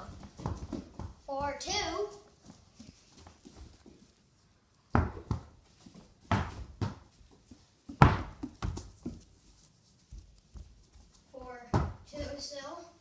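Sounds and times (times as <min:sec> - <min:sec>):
ball thudding on a wooden floor: 0:00.0 - 0:01.2, 0:04.9 - 0:05.6, 0:06.2 - 0:07.1, 0:07.9 - 0:09.2, 0:11.7 - 0:12.1.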